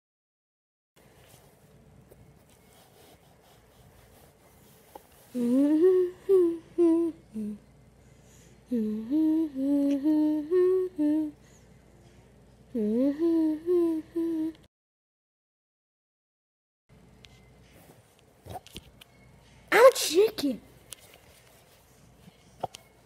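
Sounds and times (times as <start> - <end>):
boy humming a tune: 5.3 - 7.7, 8.7 - 11.4, 12.7 - 14.7.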